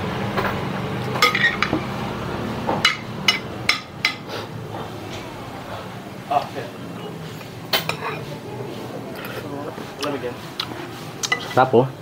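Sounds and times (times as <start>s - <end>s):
cutlery clinking on a plate: 1.2s - 1.8s, 7.7s - 8.2s, 11.2s - 11.6s.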